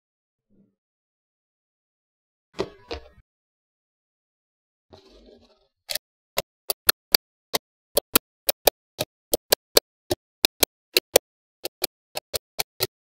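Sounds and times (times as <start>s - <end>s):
magnetic balls clicking together: 8.0s - 13.0s.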